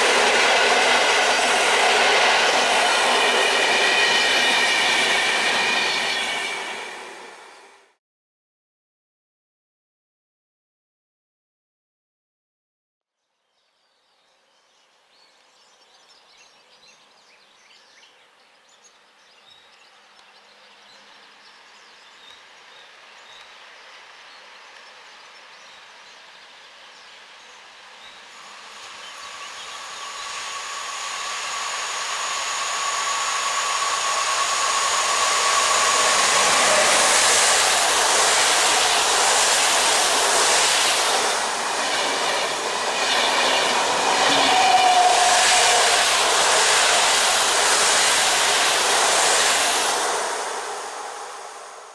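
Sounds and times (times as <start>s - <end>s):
electric train passing: 0.0s - 8.0s, 27.2s - 51.9s
train whine: 0.0s - 8.0s, 27.7s - 51.9s.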